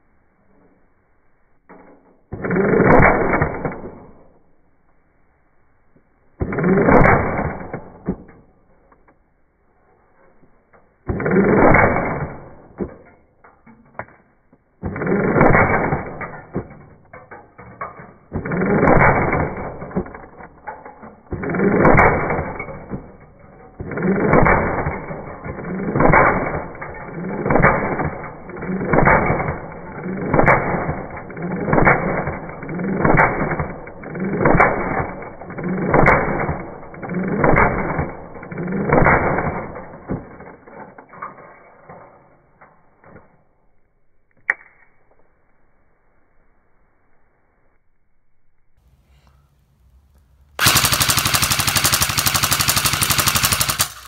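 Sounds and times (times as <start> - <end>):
airsoft rifle bursts: 50.6 - 54.0.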